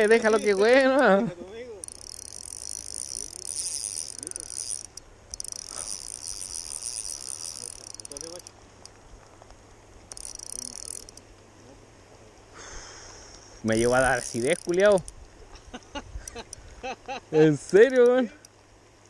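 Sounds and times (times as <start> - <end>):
fishing reel drag clicking: 0.0 - 1.0, 1.8 - 9.0, 10.1 - 11.2, 13.3 - 15.4, 16.2 - 16.7, 17.5 - 18.6.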